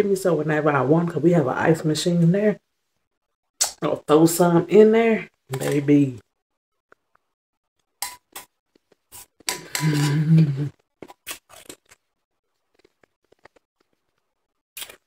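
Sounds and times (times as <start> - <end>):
person speaking: 3.6 - 6.3.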